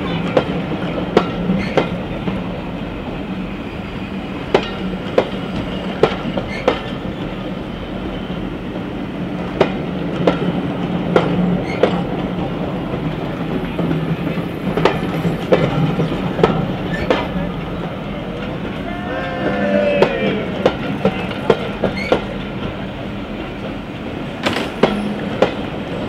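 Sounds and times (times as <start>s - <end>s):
train rolling rumble: 0.0s - 26.0s
wheels clicking over rail joints: 4.5s - 7.4s, 18.3s - 26.0s.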